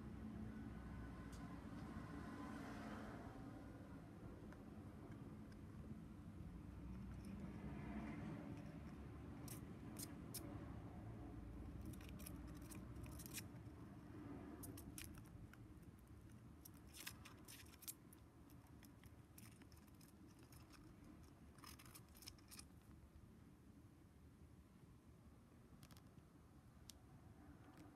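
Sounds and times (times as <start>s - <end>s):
bird beak nibbling cardboard: 11.7s - 22.8s.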